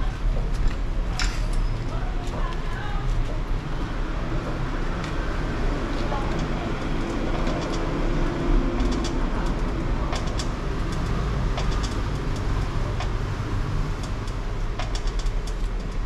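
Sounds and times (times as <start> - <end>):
spring compressor clicking: 8.8 - 13.2, 13.9 - 16.0.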